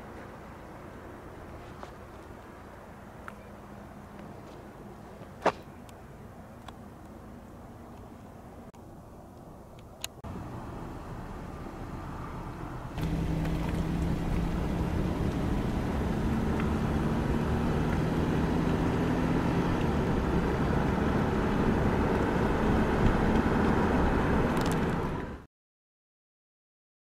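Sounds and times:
motor vehicle running: 10.2 - 25.5.

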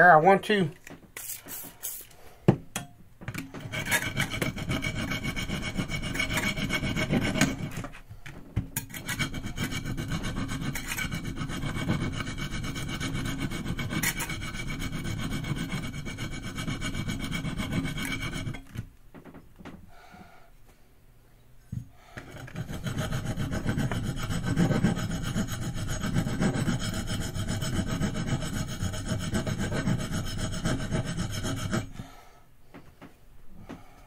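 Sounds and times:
knife grinding on sharpening stone: 3.6 - 7.9, 8.8 - 18.7, 22.3 - 31.9.

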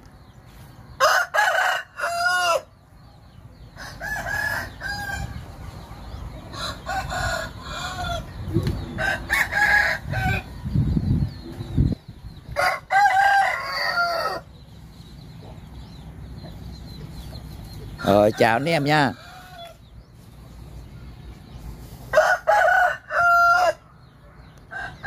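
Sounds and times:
roosters crowing: 0.6 - 25.0
chickens clucking: 2.1 - 25.0.

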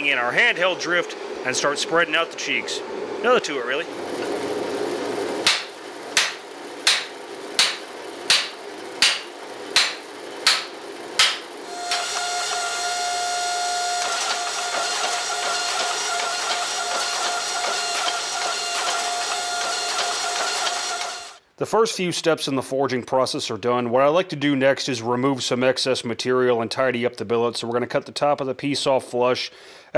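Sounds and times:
hammer ringing on hot steel: 5.5 - 13.0
hydraulic press whine: 9.6 - 21.4.

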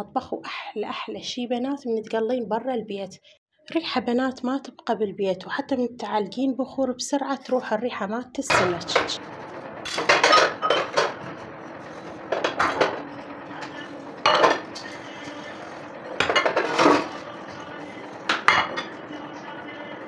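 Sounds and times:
dishes clinking in steel basin: 9.9 - 11.2, 12.2 - 17.6, 18.2 - 19.8.

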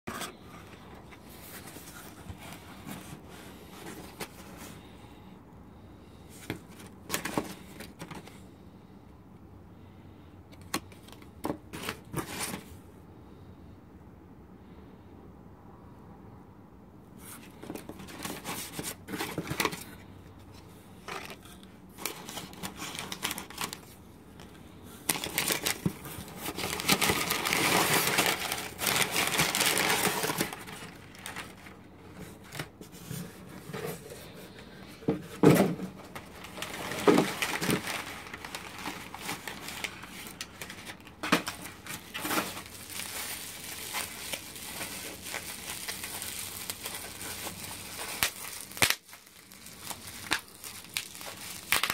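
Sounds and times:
packing paper rustling: 0.1 - 5.0, 6.3 - 8.4, 10.6 - 12.7, 17.2 - 51.9
bubble wrap crinkling: 21.0 - 24.0, 25.0 - 34.6, 35.9 - 51.9.

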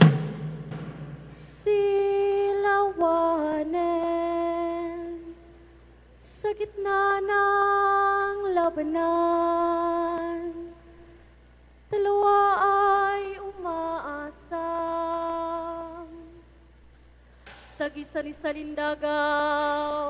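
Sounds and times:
woman singing unaccompanied: 1.3 - 5.5, 6.2 - 11.0, 11.9 - 16.5, 17.8 - 20.0.

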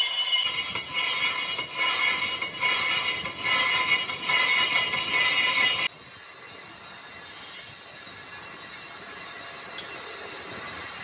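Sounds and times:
metallic squeal of lathe cutting: 0.0 - 5.9.

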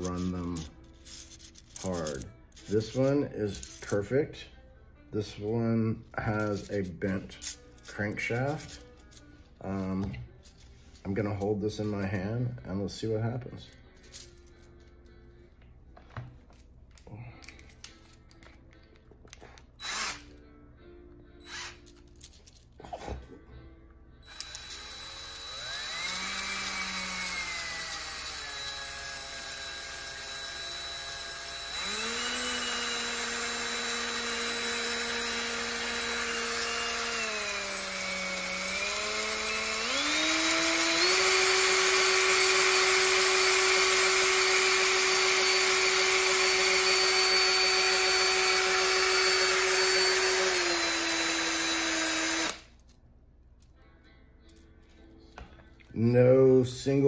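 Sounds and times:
cordless drill whine: 19.8 - 20.2, 21.4 - 21.8, 24.2 - 52.6.

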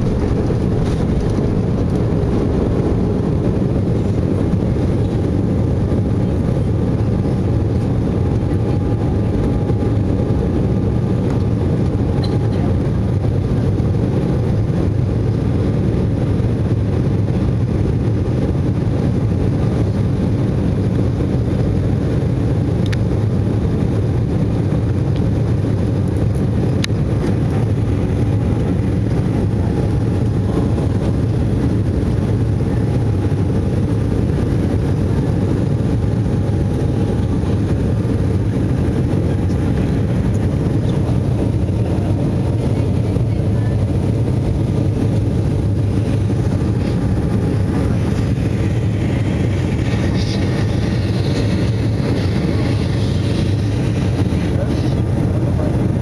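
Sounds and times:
air rushing over fuselage: 0.0 - 12.2, 25.7 - 56.0
jet cabin engine drone: 0.0 - 56.0.

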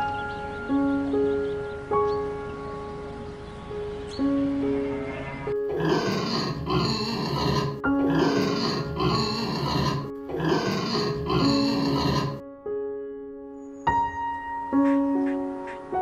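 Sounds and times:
piano music: 0.0 - 16.0
pig grunting: 5.6 - 12.4.

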